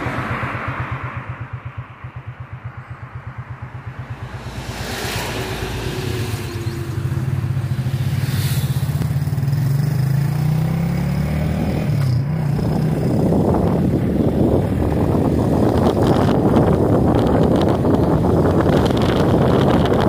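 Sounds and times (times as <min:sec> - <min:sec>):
motorcycle engine accelerating: 0:00.0 - 0:20.0
wind on microphone: 0:03.3 - 0:10.2, 0:11.9 - 0:20.0.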